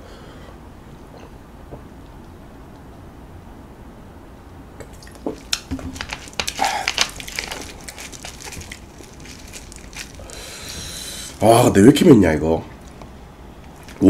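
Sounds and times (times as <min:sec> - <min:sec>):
plastic bottle crackling: 0:04.9 - 0:11.5.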